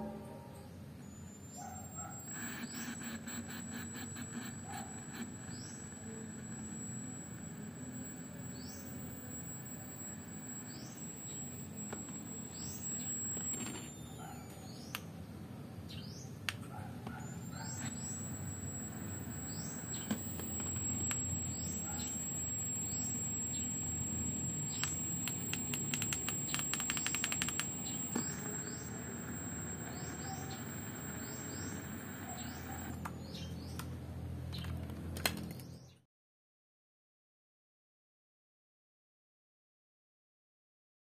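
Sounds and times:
thin high whine: 0:00.0 - 0:15.0, 0:17.0 - 0:33.6
steady background hum: 0:00.0 - 0:35.7
birds chirping: 0:00.6 - 0:15.1, 0:15.9 - 0:33.8
clicks: 0:01.9 - 0:14.0, 0:16.5 - 0:33.2.

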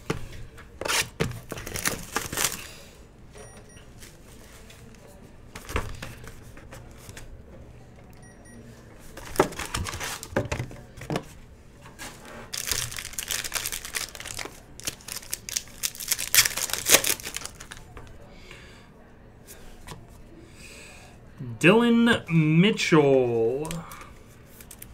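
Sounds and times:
foil wrappers crinkling and tearing: 0:01.4 - 0:02.8, 0:12.5 - 0:17.9
cards tapping and rustling: 0:09.1 - 0:11.3.

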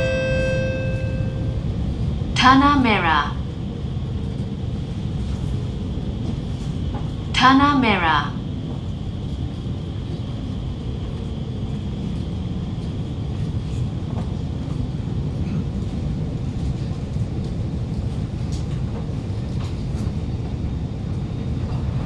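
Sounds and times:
faint high whine: 0:00.0 - 0:01.8
train wheels and motors rumbling: 0:00.0 - 0:22.0.

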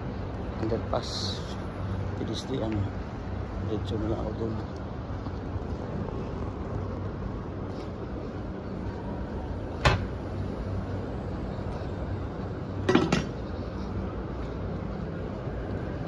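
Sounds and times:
city street ambience: 0:00.0 - 0:16.0.

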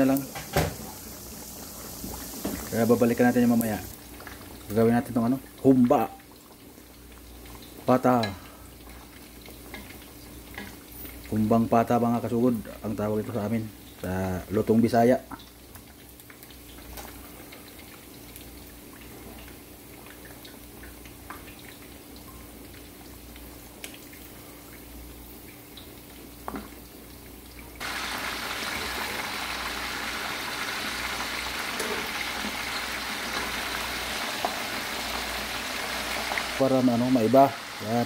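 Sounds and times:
meat sizzling in oil: 0:00.0 - 0:27.0, 0:27.7 - 0:38.0
oil crackling with small pops: 0:01.9 - 0:11.4, 0:15.2 - 0:27.9.

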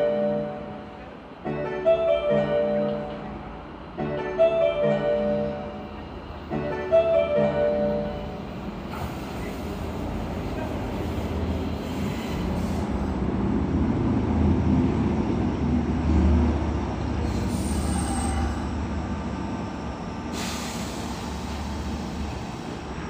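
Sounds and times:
electric train pulling in: 0:00.0 - 0:23.0
high brake squeal: 0:11.2 - 0:13.0, 0:17.2 - 0:23.0.

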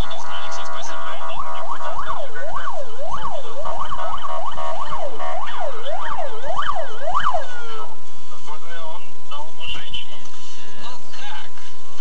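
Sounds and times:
emergency vehicle siren: 0:00.0 - 0:08.0.

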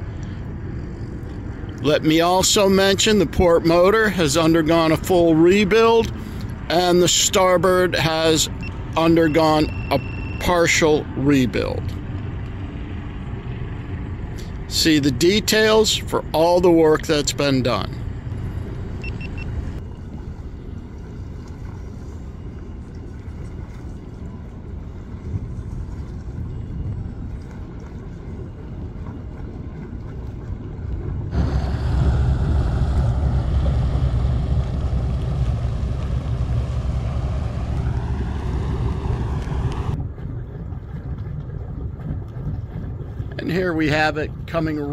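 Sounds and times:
boat engines rumbling: 0:00.0 - 0:44.9
wind rumbling on microphone: 0:11.7 - 0:44.9.

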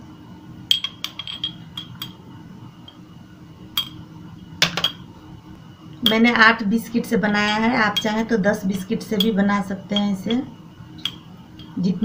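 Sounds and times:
spoon clinking against glass: 0:00.7 - 0:02.2, 0:03.8 - 0:04.0, 0:04.6 - 0:05.0, 0:09.2 - 0:10.4, 0:11.0 - 0:11.8.

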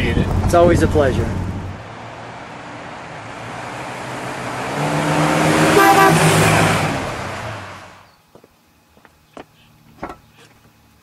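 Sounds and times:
car engine driving past: 0:00.2 - 0:08.1.

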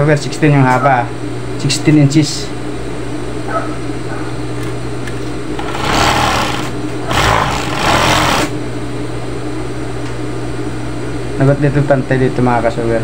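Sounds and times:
sewing machine motor humming: 0:05.6 - 0:08.6
sewing machine stitching: 0:05.6 - 0:08.6.

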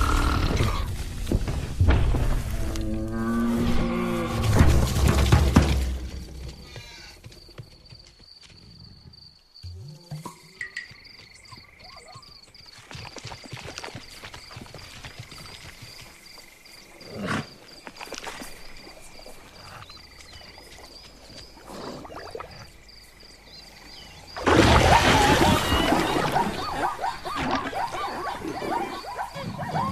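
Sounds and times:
wavering animal squeals: 0:24.8 - 0:29.9.

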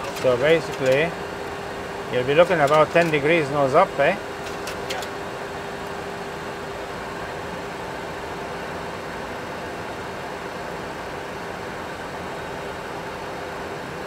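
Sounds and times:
simulated engine and airflow noise: 0:00.0 - 0:14.0
steady hum: 0:00.0 - 0:14.0.

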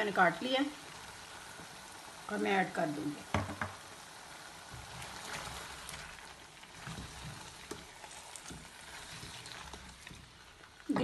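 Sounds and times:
food sizzling in oil in a wok: 0:00.0 - 0:11.0
spatula knocking and scraping: 0:06.8 - 0:11.0.

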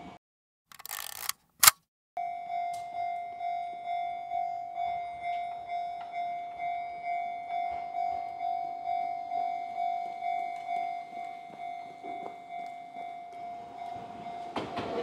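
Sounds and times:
level crossing warning bell ringing: 0:02.2 - 0:15.0.

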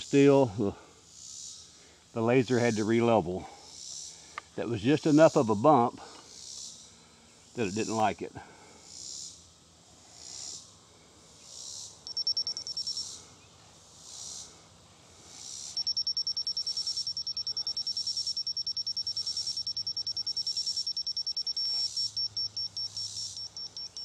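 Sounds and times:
insects chorus: 0:00.0 - 0:24.0
laser level receiver beeping: 0:12.0 - 0:13.0, 0:15.7 - 0:24.0.

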